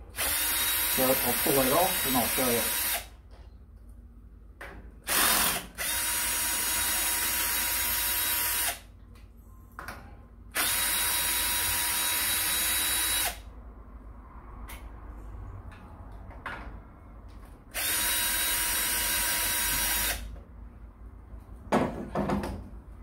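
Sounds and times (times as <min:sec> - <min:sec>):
cordless drill running: 0:00.2 - 0:03.1, 0:05.1 - 0:08.8, 0:10.6 - 0:13.4, 0:17.7 - 0:20.3.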